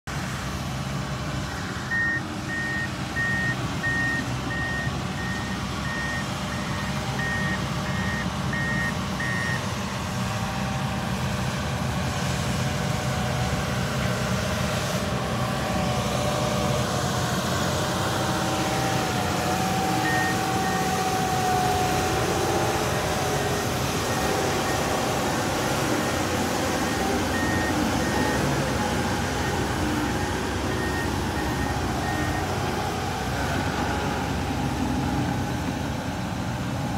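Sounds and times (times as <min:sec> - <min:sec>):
tractor diesel engine under load: 0:00.0 - 0:36.9
backup alarm beeping: 0:01.5 - 0:09.6, 0:19.9 - 0:21.0, 0:25.9 - 0:32.5.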